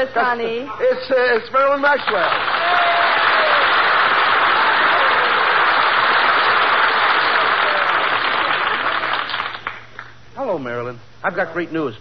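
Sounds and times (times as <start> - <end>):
audience applauding: 2.0 - 10.1.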